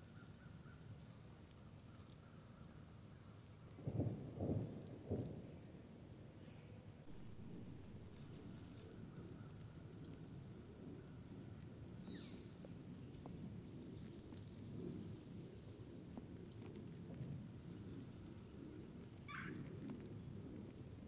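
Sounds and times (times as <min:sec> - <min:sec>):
low background rumble: 0:07.0 - 0:15.3.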